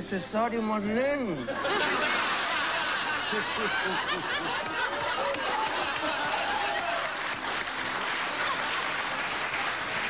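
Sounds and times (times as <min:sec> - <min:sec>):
audience applauding and cheering: 0:02.3 - 0:10.0.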